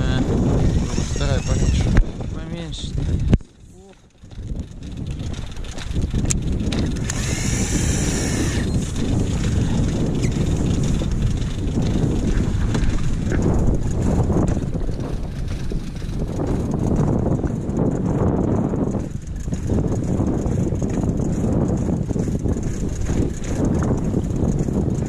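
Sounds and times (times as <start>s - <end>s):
wind noise on microphone: 0.0s - 25.0s
fishing reel whirring: 0.5s - 2.0s, 5.2s - 12.5s.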